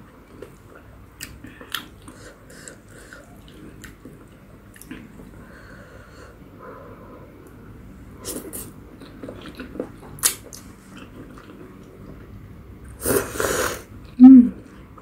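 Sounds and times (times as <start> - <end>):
person slurping noodles: 13.0 - 13.9.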